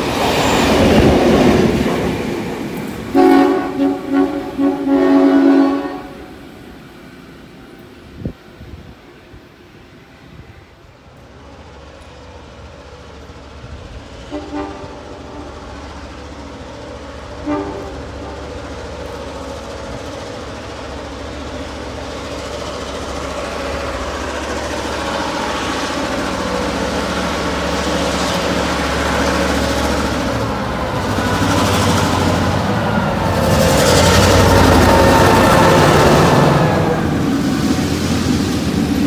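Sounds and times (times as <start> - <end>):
diesel locomotive engine hum: 0.0 - 39.0
locomotive horn toots: 3.1 - 6.5, 14.3 - 15.8, 17.3 - 18.6.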